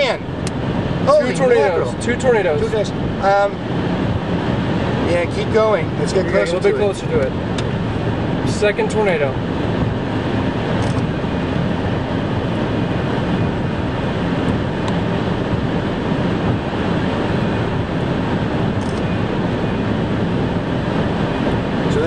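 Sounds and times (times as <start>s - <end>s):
car road and wind noise: 0.0s - 22.0s.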